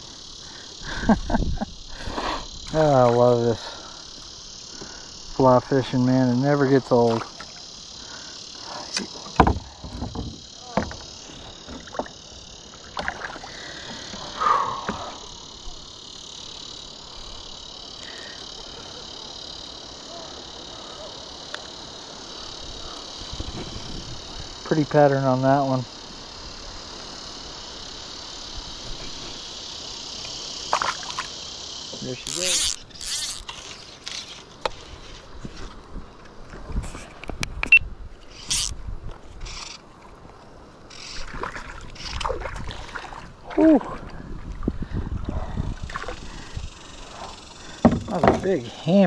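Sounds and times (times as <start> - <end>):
crickets chirping: 0.0 - 49.0
high-pitched insect chorus: 0.0 - 49.0
fish splashing at the surface: 30.7 - 31.4, 41.2 - 44.0
knocks on a plastic canoe hull: 47.8 - 48.4.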